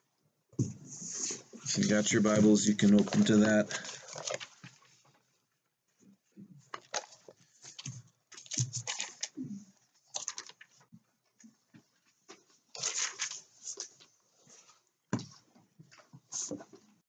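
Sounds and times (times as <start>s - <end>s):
paper pages rustling: 0.6s - 5.1s, 6.7s - 9.4s, 10.1s - 10.8s, 12.7s - 14.8s.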